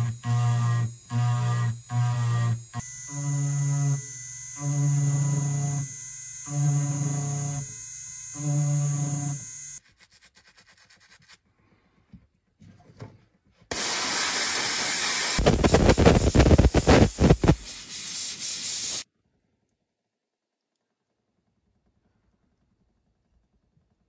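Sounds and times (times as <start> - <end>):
spray nozzle hissing: 13.7 - 19.0.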